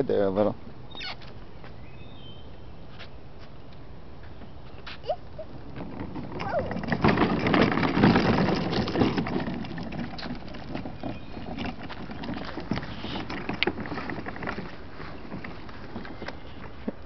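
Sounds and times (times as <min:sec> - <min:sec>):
footsteps: 0:02.9 - 0:17.0
toy wagon rattling and clattering: 0:05.5 - 0:16.7
rustling in grass: 0:11.2 - 0:16.9.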